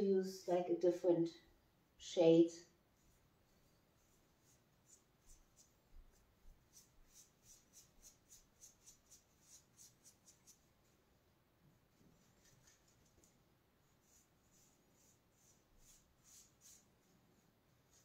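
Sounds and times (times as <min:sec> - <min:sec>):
paintbrush scratching on wall: 0:03.0 - 0:11.0, 0:12.0 - 0:18.0.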